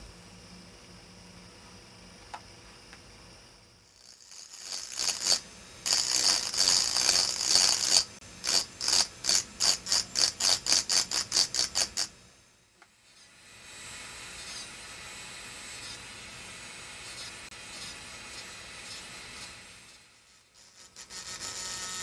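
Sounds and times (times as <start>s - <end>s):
drill burr grinding glass: 3.9s - 12.2s, 13.0s - 22.0s.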